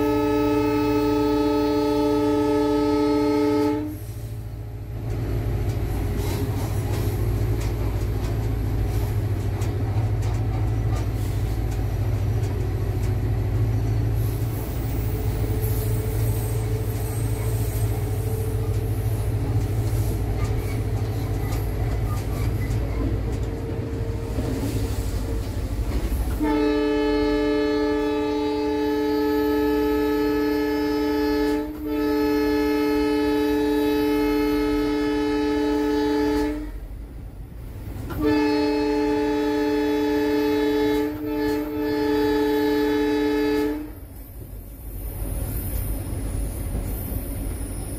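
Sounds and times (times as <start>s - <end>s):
locomotive horn blasts: 0.0s - 4.0s, 26.3s - 36.9s, 38.1s - 44.0s
diesel engine low rumble: 0.0s - 47.9s.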